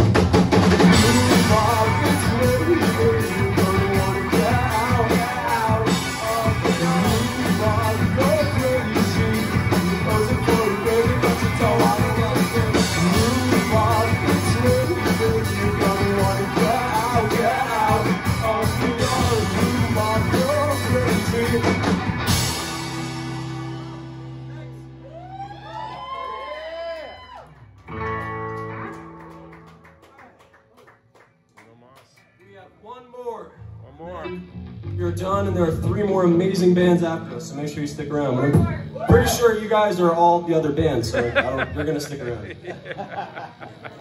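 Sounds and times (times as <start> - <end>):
rock band playing: 0.0 - 25.9, 27.8 - 29.9, 34.2 - 44.0
person singing lead vocal: 0.9 - 21.9.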